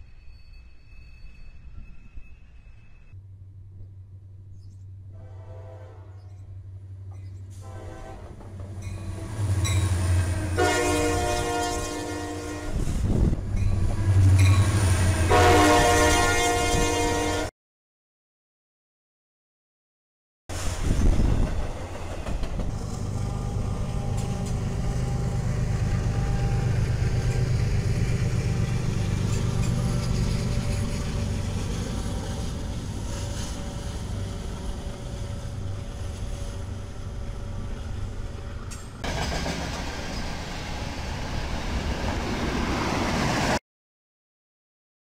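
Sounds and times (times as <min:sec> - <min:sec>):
train locomotive engine running: 0:20.5 - 0:42.8.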